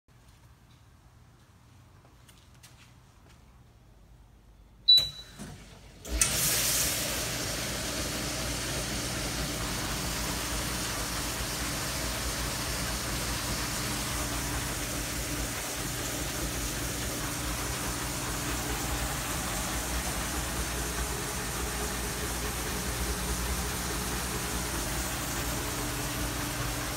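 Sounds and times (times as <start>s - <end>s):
short high beep: 4.9s - 5.4s
dishwasher water spraying: 6.1s - 26.9s.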